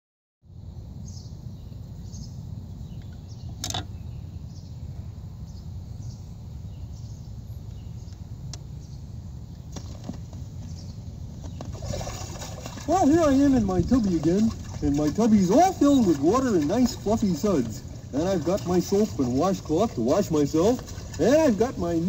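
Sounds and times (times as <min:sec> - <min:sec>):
record player rumble: 0:12.8 - 0:22.0.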